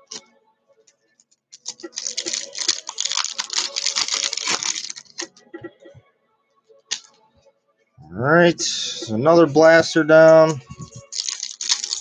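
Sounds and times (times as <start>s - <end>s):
packaging crinkling: 1.5s - 5.4s, 10.8s - 12.0s.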